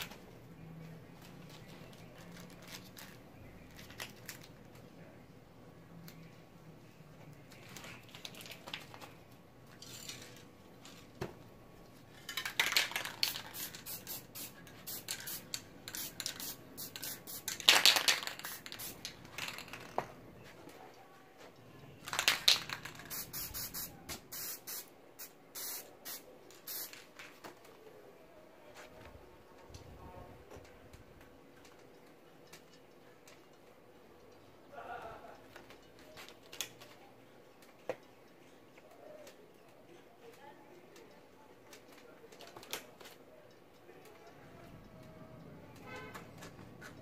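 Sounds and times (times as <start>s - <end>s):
spray paint can hissing: 12.9s - 19.6s, 22.2s - 27.0s.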